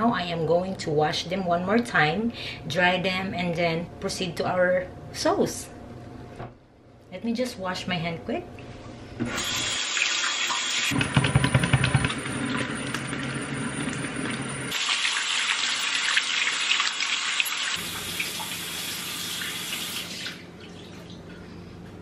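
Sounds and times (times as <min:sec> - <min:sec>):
tap running into a sink: 0:10.9 - 0:12.2.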